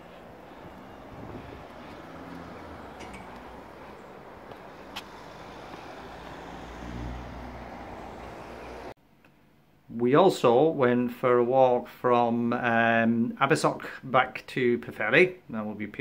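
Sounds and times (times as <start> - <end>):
road traffic: 0.0 - 9.0
vehicle passing rumble: 0.0 - 9.0.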